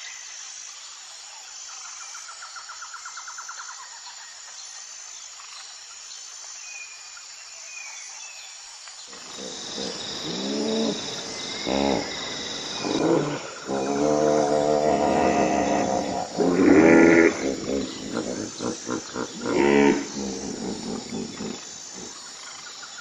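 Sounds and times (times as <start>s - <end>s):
insects trilling: 9.0s - 23.0s
animal low calls: 9.1s - 22.4s
birds chirping: 9.1s - 23.0s.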